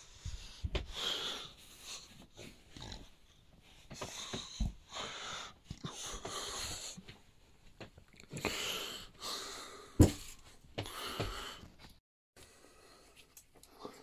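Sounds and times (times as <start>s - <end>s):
person breathing heavily: 0.0s - 2.7s, 3.7s - 7.2s, 8.4s - 11.8s.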